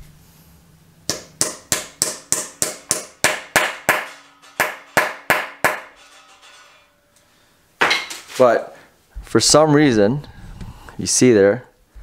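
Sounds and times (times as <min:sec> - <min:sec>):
faint metallic ring: 0:05.9 - 0:07.6.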